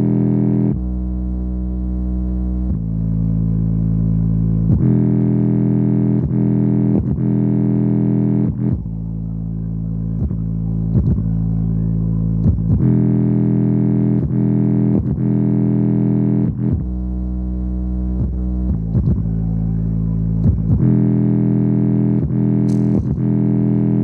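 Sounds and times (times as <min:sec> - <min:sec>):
bass-heavy music: 0:00.0 - 0:24.0
deep held bass notes: 0:00.0 - 0:24.0
beat of sharp hits: 0:22.0 - 0:24.0.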